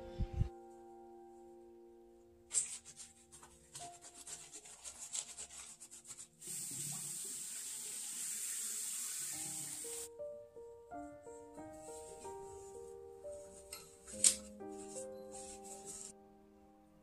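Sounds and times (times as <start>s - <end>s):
soft background music: 0.0s - 6.4s, 8.8s - 17.0s
faucet running into sink: 6.4s - 10.1s.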